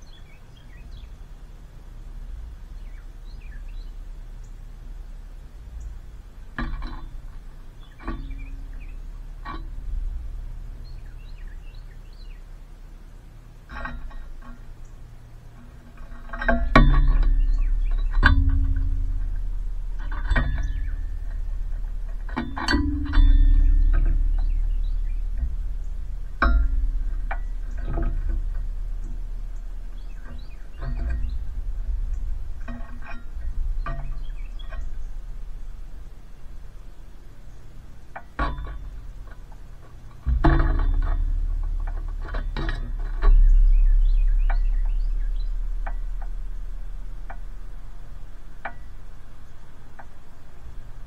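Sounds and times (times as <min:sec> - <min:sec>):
low steady hum: 0:00.0 - 0:51.0
songbirds chirping: 0:00.0 - 0:51.0
steady low rumble: 0:00.0 - 0:51.0
metal pole and hanger clinking: 0:13.6 - 0:51.0
sharp knocks: 0:16.0 - 0:50.8.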